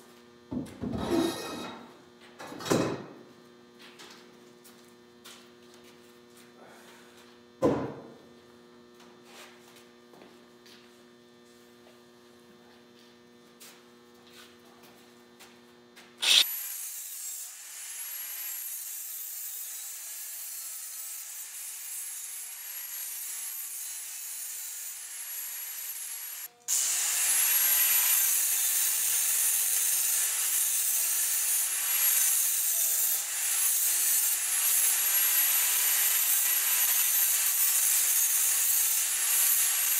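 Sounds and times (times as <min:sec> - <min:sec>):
grinder cutting metal tube: 0:16.2 - 0:39.9.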